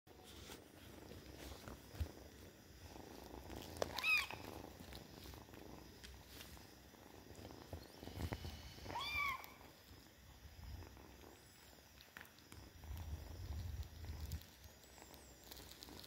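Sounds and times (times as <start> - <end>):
kittens purring: 0.1 - 16.0
high-pitched kitten mews: 8.9 - 9.6.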